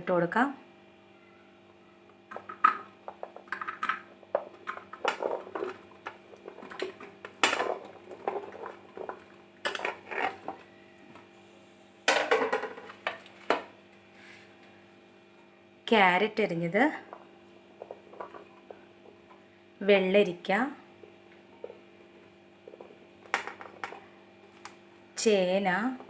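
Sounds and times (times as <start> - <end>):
vegetable pieces clattering into pot: 2.3 - 10.7.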